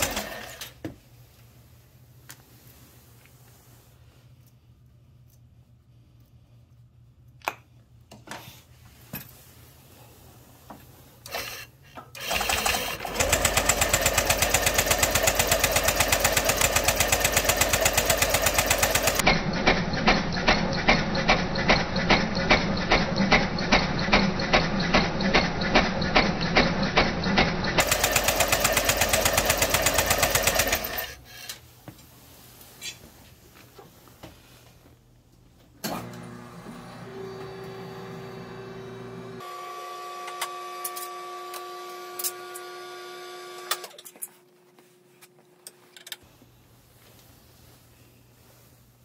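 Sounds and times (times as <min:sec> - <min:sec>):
scooter starter cranking engine: 0:00.0 - 0:00.8, 0:11.3 - 0:31.2.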